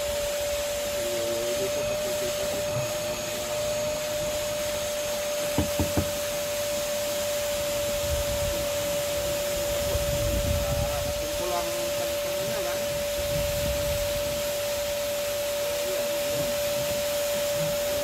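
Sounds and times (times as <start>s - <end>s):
vacuum cleaner whining: 0.0s - 18.0s
quick knocks: 5.6s - 6.2s.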